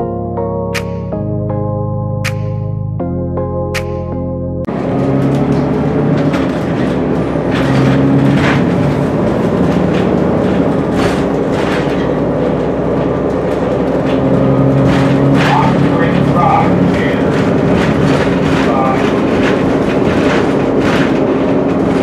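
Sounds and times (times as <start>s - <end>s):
diesel bus engine running: 4.7s - 22.0s
rattles and knocks: 4.7s - 22.0s.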